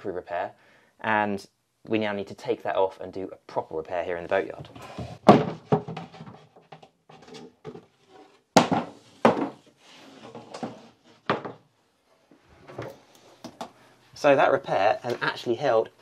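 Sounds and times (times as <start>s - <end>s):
scraping and handling noise: 4.4s - 13.8s
wooden floorboards knocking: 4.5s - 7.9s, 8.6s - 9.6s, 10.4s - 11.6s.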